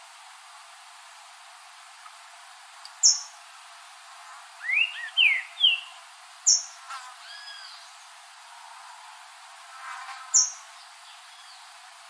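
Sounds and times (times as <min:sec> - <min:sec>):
bird whistling song: 0:04.6 - 0:07.9.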